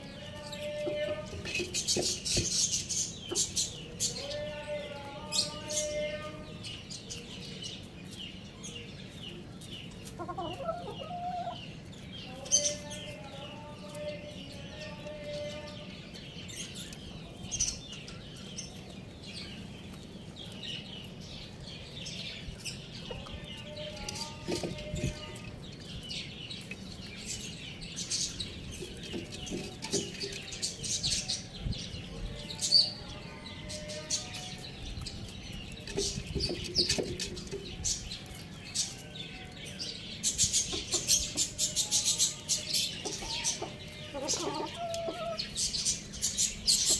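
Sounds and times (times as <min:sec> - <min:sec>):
chickens clucking: 0:00.0 - 0:06.4, 0:07.0 - 0:46.9
drawn-out chicken calls: 0:09.4 - 0:16.2, 0:22.6 - 0:26.0, 0:32.2 - 0:46.9.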